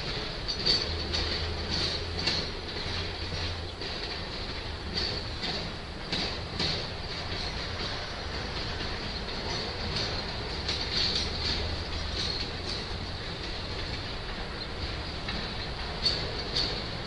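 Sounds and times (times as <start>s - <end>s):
train wheels rumbling on rail: 0.0s - 17.0s
wheel clacks: 0.0s - 17.0s.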